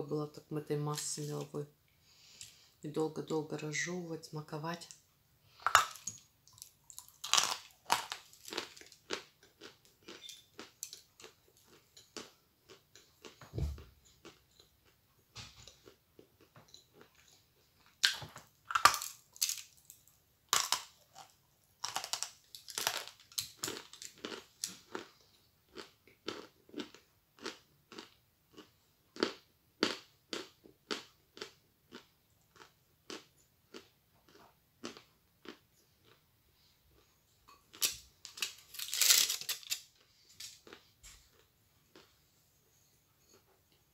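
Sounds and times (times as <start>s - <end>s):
chewing chalk crunches: 5.6s - 13.4s, 15.7s - 36.2s, 37.0s - 42.1s.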